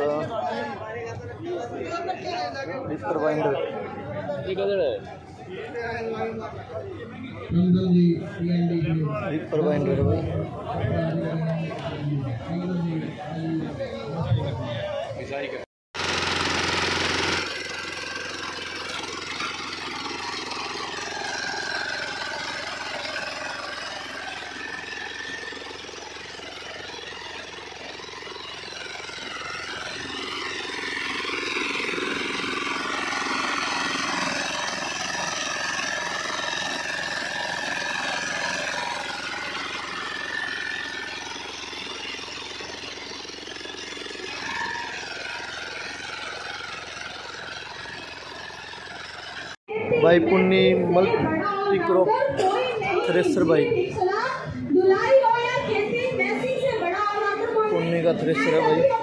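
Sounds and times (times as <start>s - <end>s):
small engine running: 0.0s - 59.0s.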